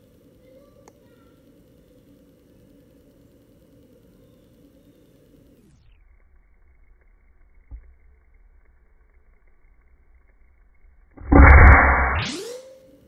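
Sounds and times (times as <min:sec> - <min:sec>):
air rifle shot: 0:11.2 - 0:12.5.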